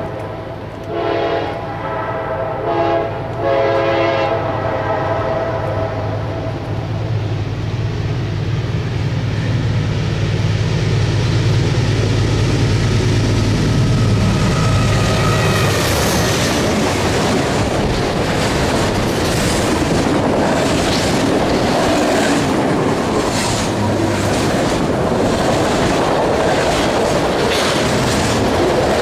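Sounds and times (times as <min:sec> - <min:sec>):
locomotive air horn blasts: 0:00.9 - 0:06.6
locomotive engine rumble: 0:05.6 - 0:29.0.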